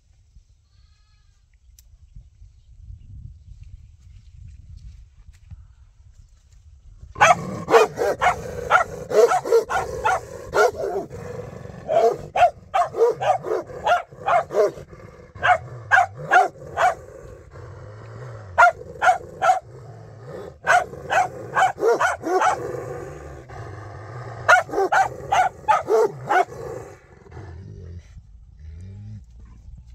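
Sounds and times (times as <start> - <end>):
small dog barking: 7.2 - 11.1, 11.8 - 17.0, 18.6 - 19.7, 20.6 - 22.7, 24.5 - 26.6.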